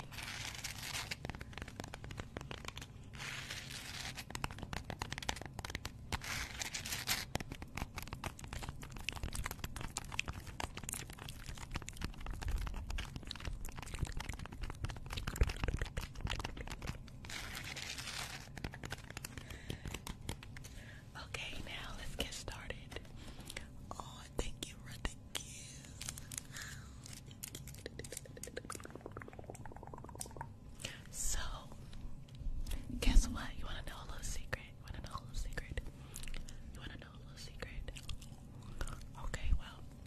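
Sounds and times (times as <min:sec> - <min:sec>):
crunchy object crackling and tearing: 0:00.0 - 0:20.7, 0:25.8 - 0:30.4
person whispering: 0:21.1 - 0:26.2, 0:27.6 - 0:30.1, 0:30.8 - 0:31.9, 0:32.7 - 0:35.9, 0:36.7 - 0:38.0, 0:38.8 - 0:40.0.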